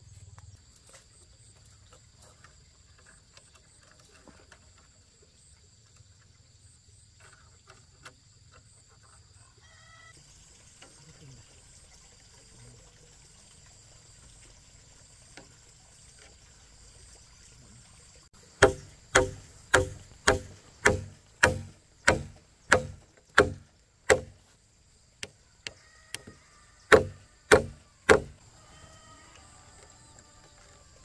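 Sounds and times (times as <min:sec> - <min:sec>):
hammer driving nail into log: 0:18.6 - 0:24.4, 0:26.9 - 0:28.4.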